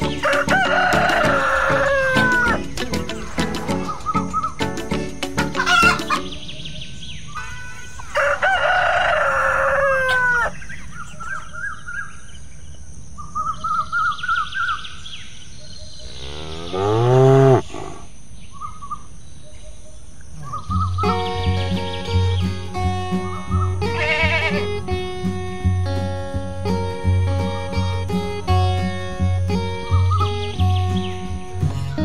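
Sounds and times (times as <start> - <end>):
hen clucking: 0.0 - 4.6, 5.4 - 6.4
rooster crowing: 0.2 - 2.6, 7.4 - 10.7
cow mooing: 16.0 - 18.1.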